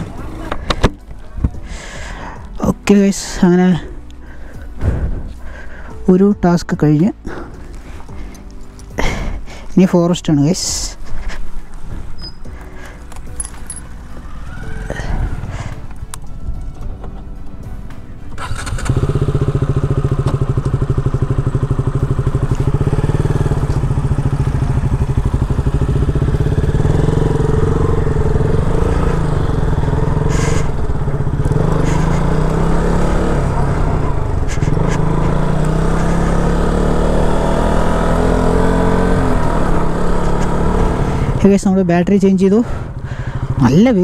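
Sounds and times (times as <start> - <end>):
motorcycle engine revving: 18.3 - 44.0.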